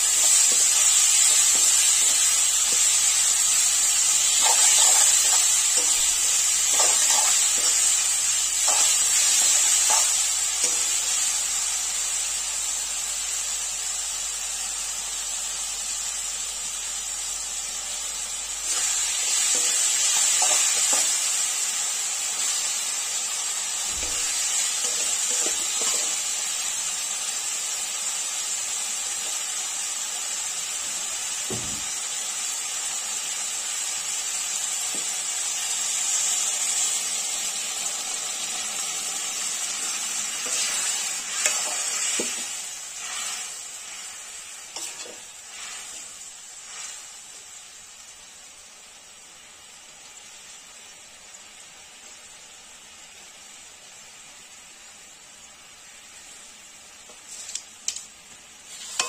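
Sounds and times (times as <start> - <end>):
vegetables sizzling in a pan: 0.0 - 59.0.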